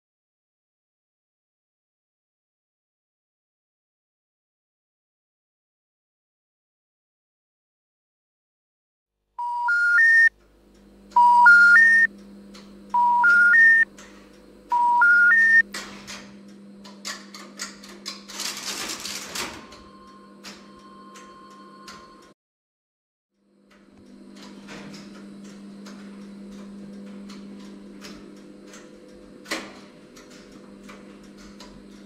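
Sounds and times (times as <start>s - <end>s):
telephone information tone: 9.4s - 10.3s, 11.1s - 12.1s, 12.9s - 13.9s, 14.7s - 15.7s, 19.6s - 22.4s
equipment hum: 9.7s - 22.3s, 23.4s - 32.0s
relays clicking and clattering: 12.2s - 14.8s, 15.5s - 22.3s, 23.7s - 32.0s.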